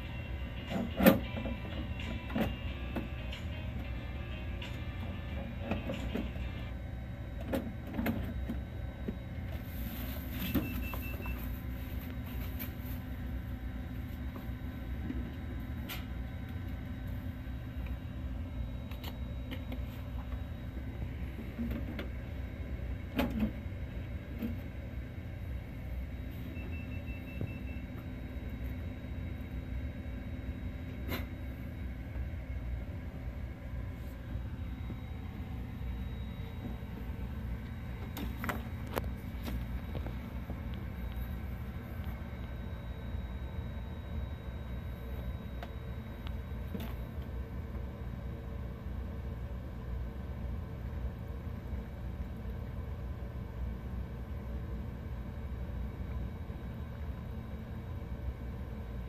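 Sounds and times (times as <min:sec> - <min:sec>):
printer humming: 0:00.0 - 0:59.0
faint high beeping: 0:10.3 - 0:11.8, 0:26.1 - 0:29.4, 0:34.3 - 0:38.2
motor whine: 0:13.5 - 0:47.9.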